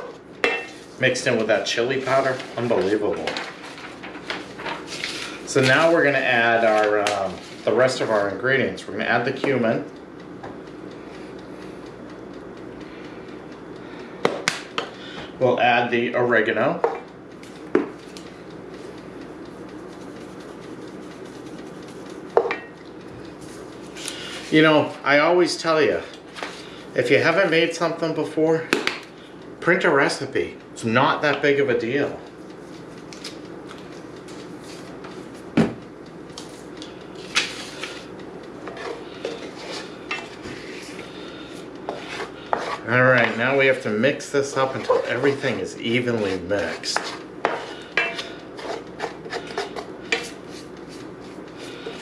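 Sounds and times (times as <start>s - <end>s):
spoon scraping and tapping in pan: 41.9s - 43.4s, 46.8s - 50.4s.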